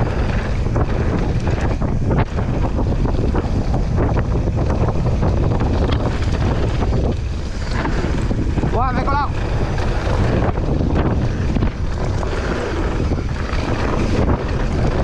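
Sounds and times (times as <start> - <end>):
bike rattling over bumps: 0.0 - 15.0
wind buffeting microphone: 0.0 - 15.0.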